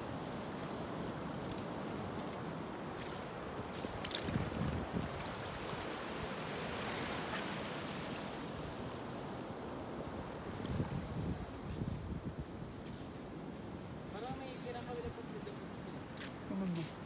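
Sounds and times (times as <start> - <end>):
wind: 0.0 - 17.0
water noise: 3.8 - 9.4.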